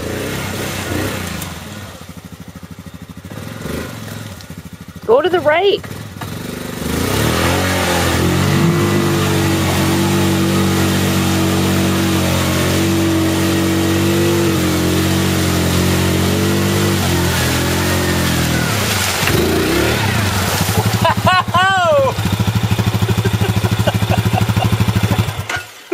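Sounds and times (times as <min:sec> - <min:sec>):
quad engine revving: 0:00.0 - 0:25.6.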